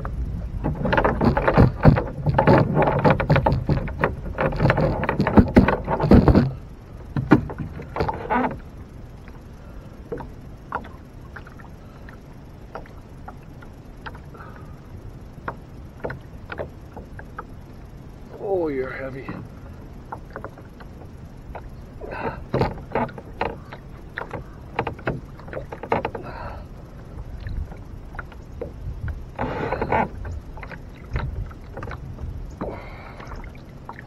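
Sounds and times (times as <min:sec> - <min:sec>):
knocks and scrapes on boat: 0:00.0 - 0:08.8, 0:15.4 - 0:18.0, 0:18.9 - 0:34.0
water splashing: 0:00.0 - 0:34.0.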